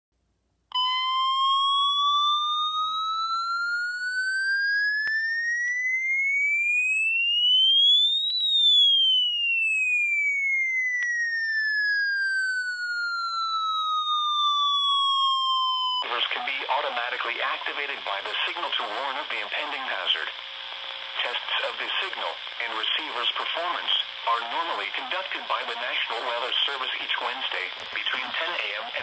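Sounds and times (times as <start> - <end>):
electronic alarm tone gliding: 0.7 - 16.2.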